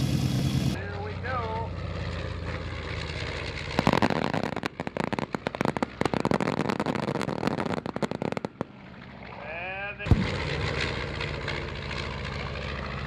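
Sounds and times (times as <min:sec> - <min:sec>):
fireworks popping and crackling: 0:03.7 - 0:08.7, 0:10.1 - 0:11.6.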